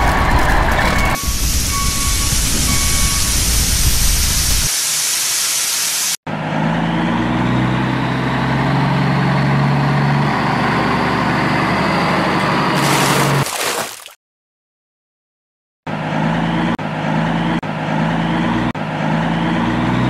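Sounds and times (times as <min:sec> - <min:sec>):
hissing rush with rumble: 0:00.5 - 0:04.7.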